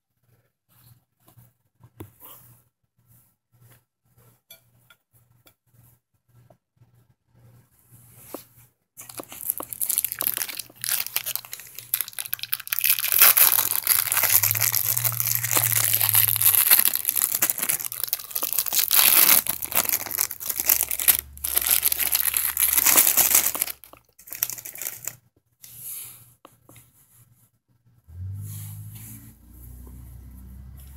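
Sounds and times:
plastic wrapper crinkling: 0:09.0 - 0:25.2.

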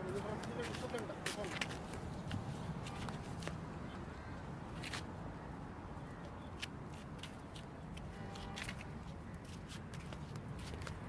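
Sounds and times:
footsteps on paving stones: 0:00.0 - 0:03.7, 0:06.6 - 0:11.0.

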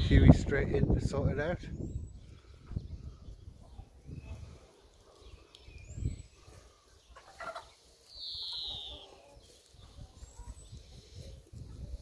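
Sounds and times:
hens clucking: 0:06.4 - 0:12.0.

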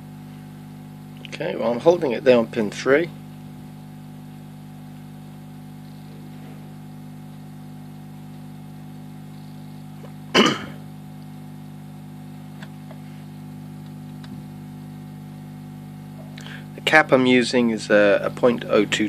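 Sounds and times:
amplifier mains hum: 0:00.0 - 0:19.0
loud short cough-like burst: 0:10.3 - 0:10.9.

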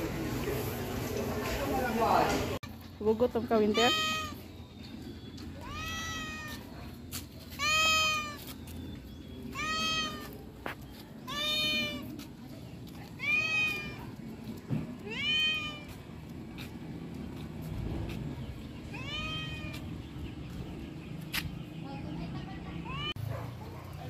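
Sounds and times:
cat meowing: 0:03.7 - 0:04.4, 0:05.6 - 0:06.7, 0:07.5 - 0:08.5, 0:09.5 - 0:10.4, 0:11.2 - 0:12.1, 0:13.1 - 0:14.1, 0:15.0 - 0:16.0, 0:18.9 - 0:19.8, 0:22.8 - 0:23.2.

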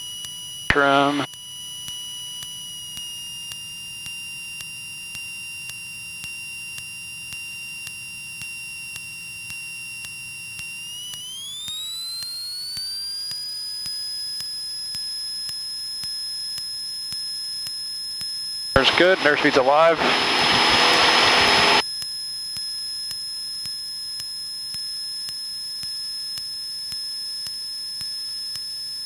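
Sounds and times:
high electrical whine: 0:00.7 - 0:01.3, 0:18.8 - 0:21.8.

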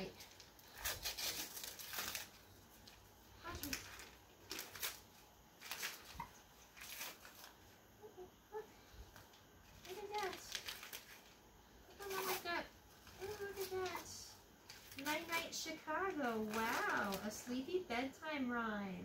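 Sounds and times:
wrapping paper rustling: 0:00.0 - 0:07.8, 0:09.1 - 0:17.6.

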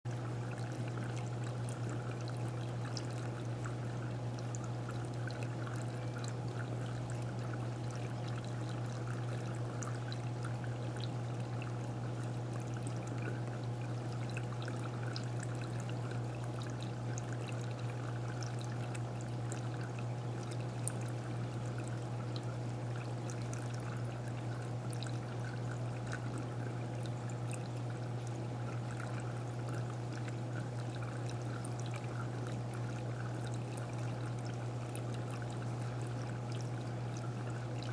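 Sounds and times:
low pump hum: 0:00.1 - 0:37.9
water pouring and trickling: 0:00.1 - 0:37.9.

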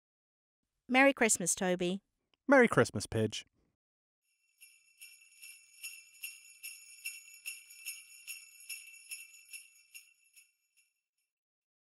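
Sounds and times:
jingle bells shaken: 0:04.4 - 0:11.0.

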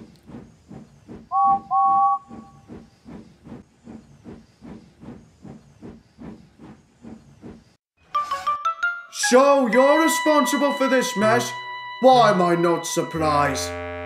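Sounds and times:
steam locomotive chuffing: 0:00.0 - 0:07.8
two-tone steam whistle: 0:01.3 - 0:02.6.

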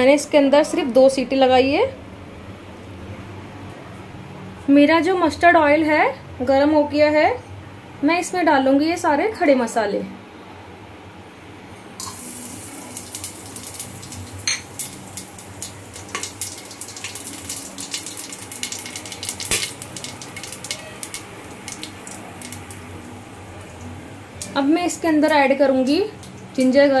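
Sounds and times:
oil sizzling: 0:12.0 - 0:27.0.

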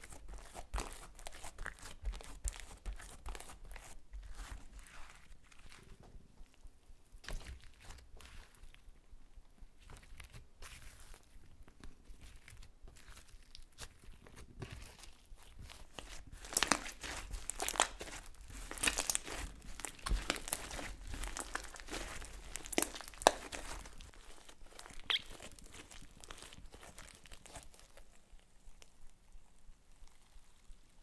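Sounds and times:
slime crackling and popping: 0:12.3 - 0:31.0.

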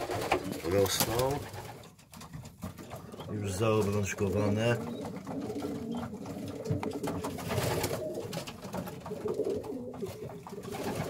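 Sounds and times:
pigeons cooing: 0:02.8 - 0:11.0.

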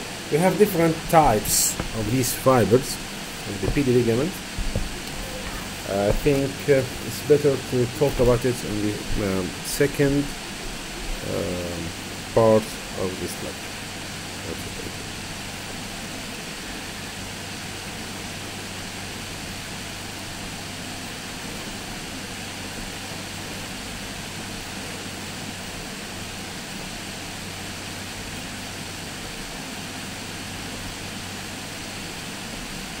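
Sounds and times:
low hum: 0:00.0 - 0:25.8
even hiss: 0:00.0 - 0:33.0.

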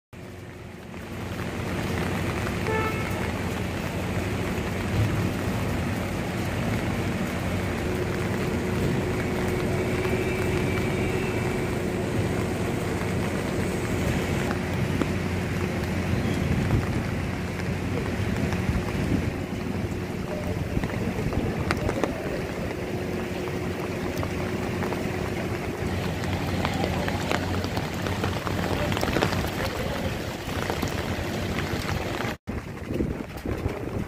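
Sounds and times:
vehicles driving through heavy rain: 0:00.2 - 0:34.0
short horn tone: 0:02.6 - 0:03.4
wind on microphone: 0:07.6 - 0:34.0.

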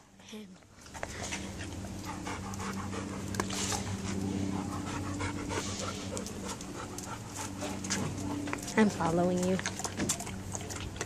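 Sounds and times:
low hum: 0:00.0 - 0:11.0
dog panting: 0:00.9 - 0:11.0.

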